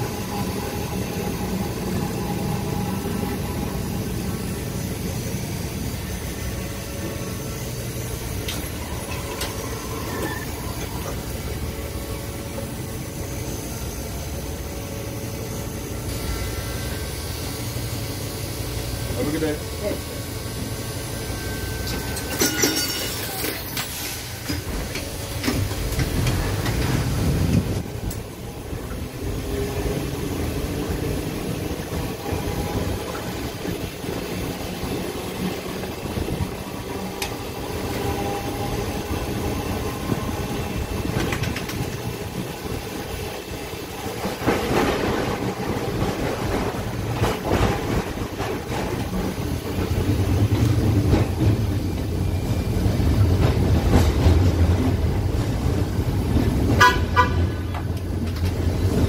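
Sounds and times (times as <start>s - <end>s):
steel wheels rumbling on rails: 0.0s - 59.0s
wheels clacking over rail joints: 21.8s - 29.0s.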